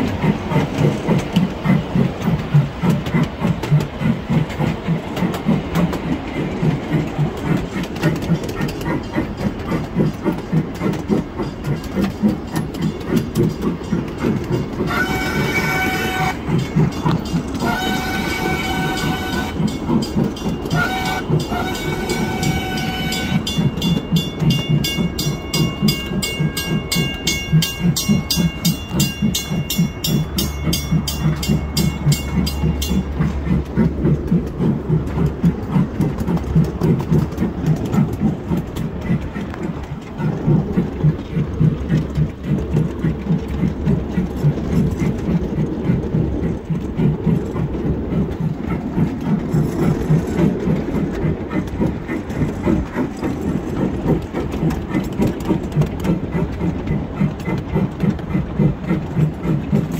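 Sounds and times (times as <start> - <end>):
train wheels clicking on rails: 0.0 - 59.9
crossing bell ringing: 11.3 - 33.4
miniature train horn: 14.7 - 33.2.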